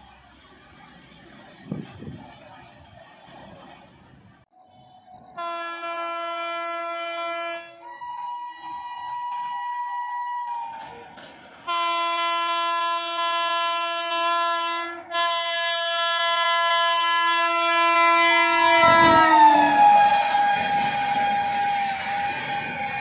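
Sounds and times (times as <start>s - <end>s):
rumble of passing train: 0.0s - 23.0s
locomotive horn blast: 4.7s - 9.9s, 11.6s - 23.0s.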